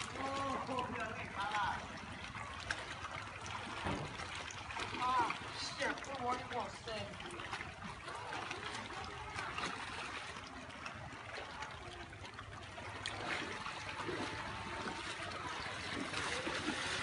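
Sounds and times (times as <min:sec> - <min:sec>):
shallow water splashing: 0:00.0 - 0:17.0.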